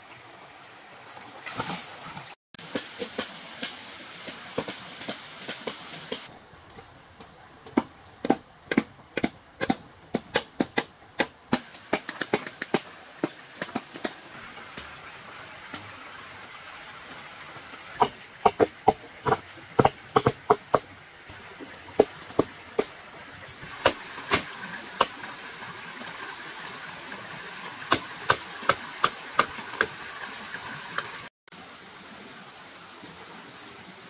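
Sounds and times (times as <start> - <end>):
tools knocking on wood: 18.0 - 20.9
steady hiss: 31.0 - 34.0.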